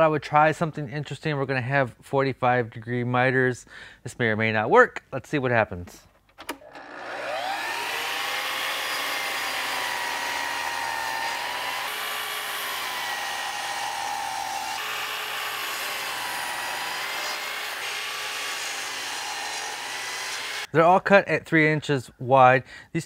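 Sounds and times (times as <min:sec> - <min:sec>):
miter saw motor whine: 0:06.6 - 0:20.7.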